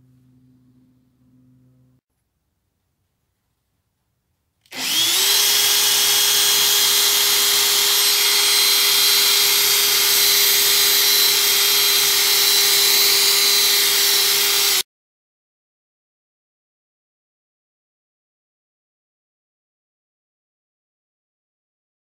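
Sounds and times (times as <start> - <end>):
cordless drill whining: 4.6 - 14.8.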